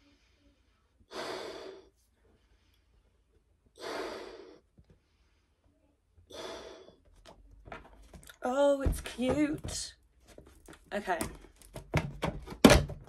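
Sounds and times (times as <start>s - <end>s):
loud breaths: 0.0s - 3.2s, 3.8s - 5.7s, 6.3s - 7.1s
person blowing up balloon: 1.1s - 1.9s, 3.8s - 4.6s, 6.3s - 7.0s.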